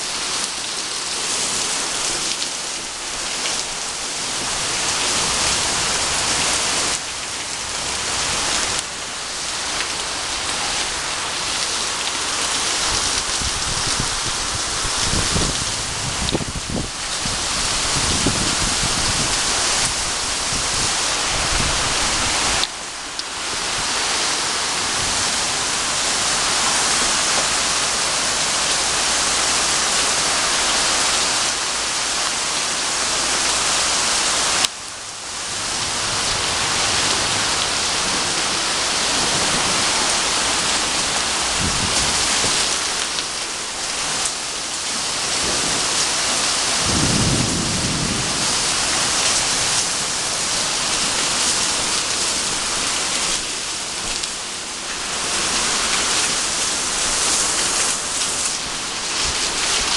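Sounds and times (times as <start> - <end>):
heavy rain on a roof: 0.0 - 59.9
low thunder rumbles: 46.7 - 50.5.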